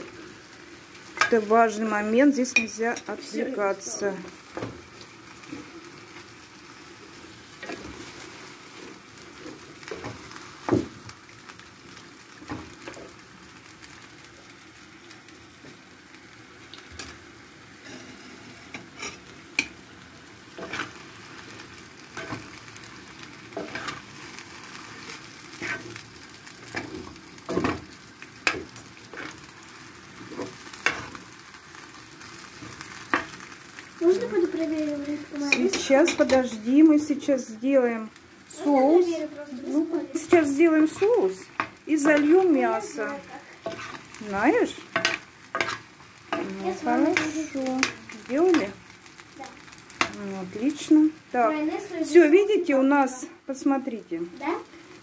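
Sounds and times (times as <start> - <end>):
meat sizzling in a pan: 0.0 - 55.0
metal spoon scraping a pan: 2.4 - 3.2, 17.8 - 19.8, 20.6 - 21.0, 22.1 - 22.6, 23.5 - 26.0, 26.6 - 29.4, 30.2 - 31.2, 43.6 - 44.2, 44.8 - 48.8.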